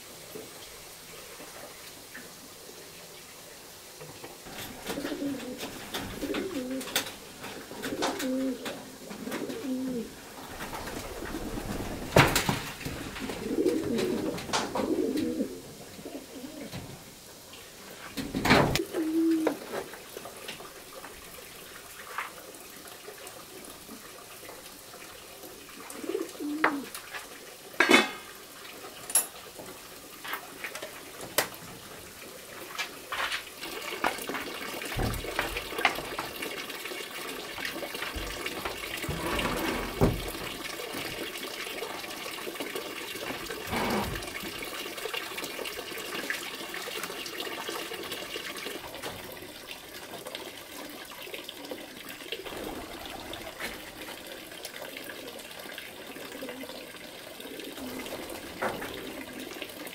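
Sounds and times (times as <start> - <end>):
pot and utensils clinking: 27.8 - 28.4, 29.0 - 29.4.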